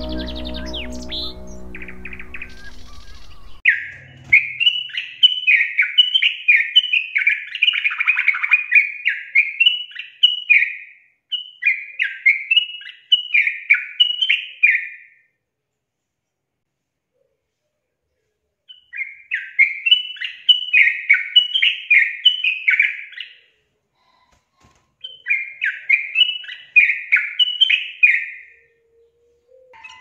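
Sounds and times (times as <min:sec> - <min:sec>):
bird chattering song: 0:00.0 - 0:15.1, 0:25.0 - 0:30.0.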